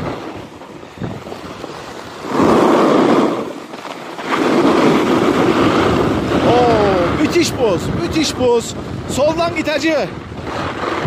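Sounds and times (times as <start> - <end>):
skis scraping on ice: 0.0 - 6.5, 9.8 - 11.0.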